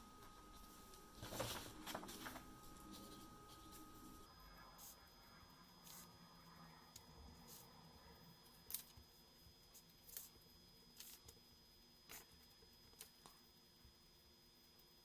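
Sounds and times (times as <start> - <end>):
paper sheets shifting: 0.6 - 4.1.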